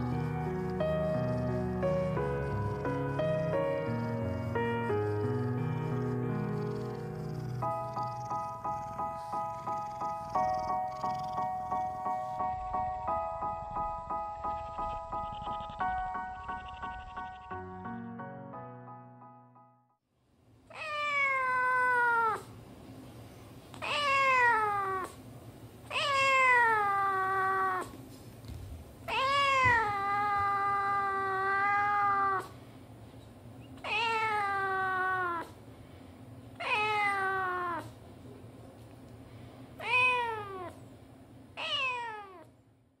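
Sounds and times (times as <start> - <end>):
cat meowing: 20.7 - 22.5, 23.8 - 25.2, 25.9 - 28.0, 29.1 - 32.5, 33.8 - 35.6, 36.6 - 38.0, 39.8 - 40.8, 41.6 - 42.5.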